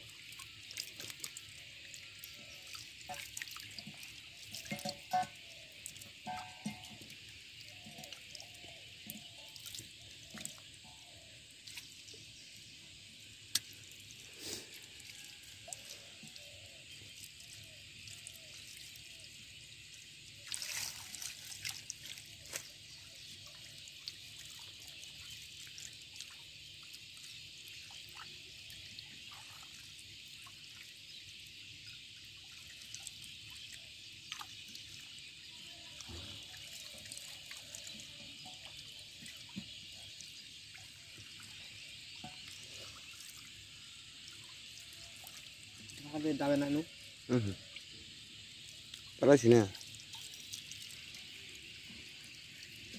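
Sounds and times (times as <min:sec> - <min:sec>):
water splashing: 0:00.0 - 0:10.8, 0:20.4 - 0:27.0
shallow water trickling over mud: 0:00.0 - 0:52.9
small drips and clicks: 0:00.0 - 0:52.9.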